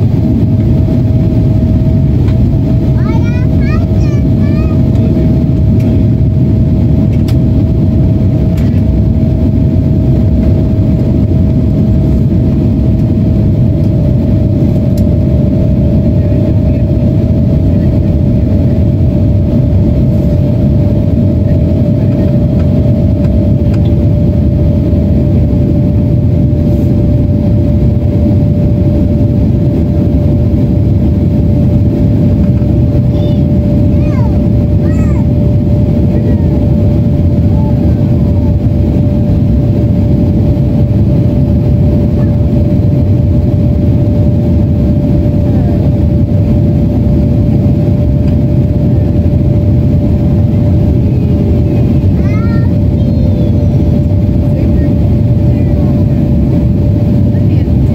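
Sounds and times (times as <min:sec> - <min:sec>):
jet cabin engine rumble: 0:00.0 - 0:57.9.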